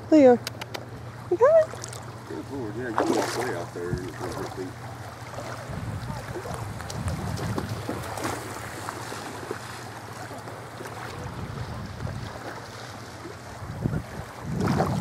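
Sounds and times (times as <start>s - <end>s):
small waves lapping: 0.1s - 15.0s
wind on microphone: 5.6s - 8.2s, 11.1s - 12.4s, 13.6s - 15.0s.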